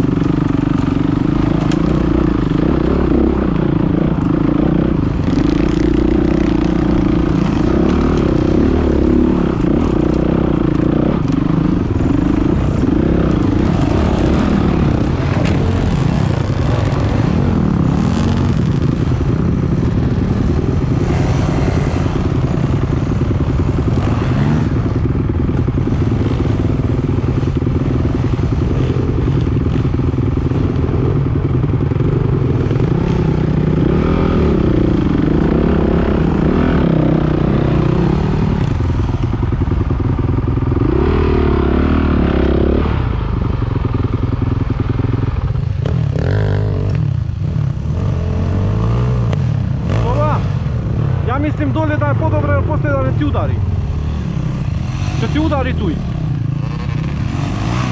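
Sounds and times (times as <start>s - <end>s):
dirt bike engines revving: 0.0s - 57.9s.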